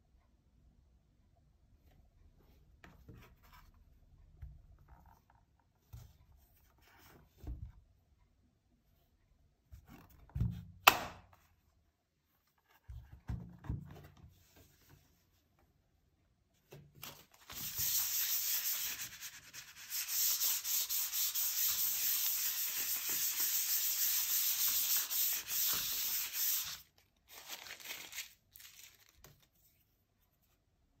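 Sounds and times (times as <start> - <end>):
rubbing and scraping: 17.4 - 26.8.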